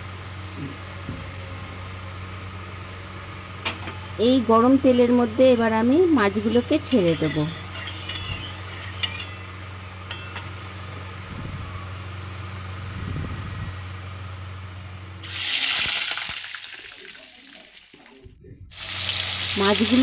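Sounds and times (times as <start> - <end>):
low steady hum: 0.0 - 15.8
fish sizzling in hot oil: 15.2 - 18.1, 18.7 - 20.0.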